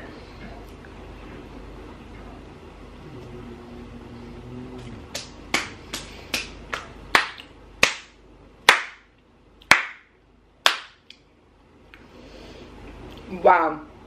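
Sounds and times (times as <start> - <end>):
person humming: 3.0 - 5.2
hand claps: 5.1 - 11.2.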